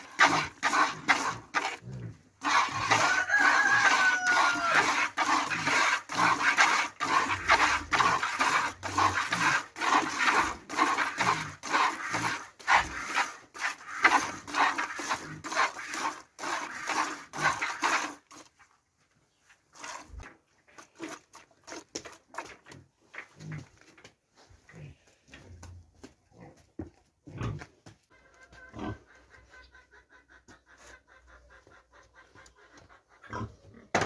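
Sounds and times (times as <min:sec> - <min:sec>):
milk squirting into plastic bucket: 0:02.4 - 0:18.5.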